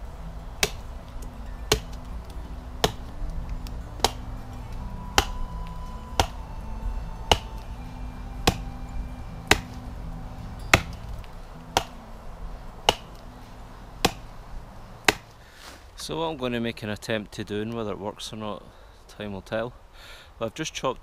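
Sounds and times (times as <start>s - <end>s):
axe chopping log: 0.6s - 6.5s, 7.2s - 9.9s, 10.5s - 12.0s, 12.8s - 14.4s, 15.0s - 15.7s.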